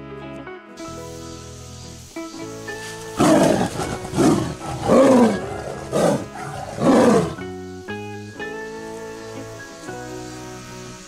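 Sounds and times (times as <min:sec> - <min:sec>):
tiger calling: 0:02.9 - 0:07.5.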